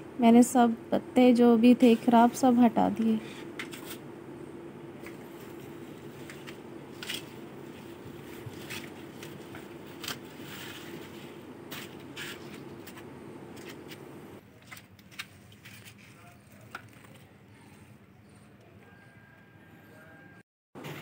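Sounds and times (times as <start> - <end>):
steady low hum: 0.0 - 21.0
foliage rustling and snapping: 5.0 - 14.0.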